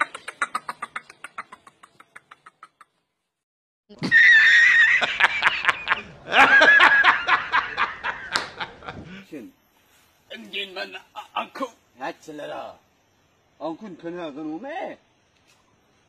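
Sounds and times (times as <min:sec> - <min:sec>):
hearty laughter: 0:04.1 - 0:09.2.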